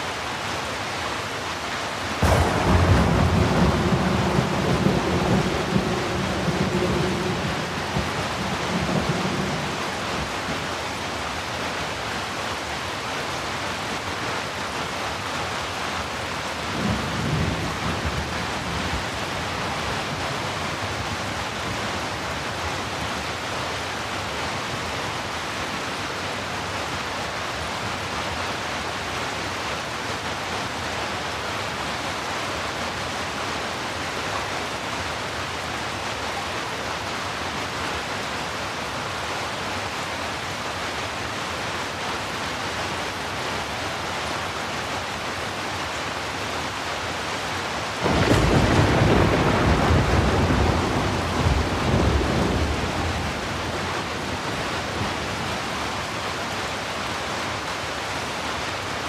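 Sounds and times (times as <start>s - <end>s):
heavy rain: 0.0s - 59.0s
thunder rumble: 2.2s - 10.6s, 48.0s - 55.6s.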